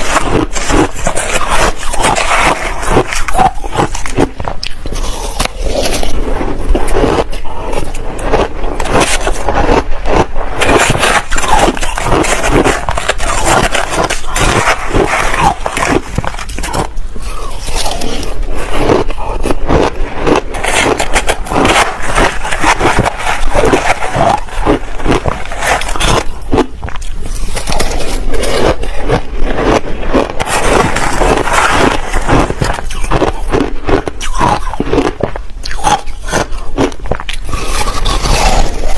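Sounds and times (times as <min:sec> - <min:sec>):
metal spoon scraping plastic container: 0:00.0 - 0:19.6, 0:20.4 - 0:26.4, 0:30.3 - 0:33.2
crunching and chewing ice: 0:00.0 - 0:38.9.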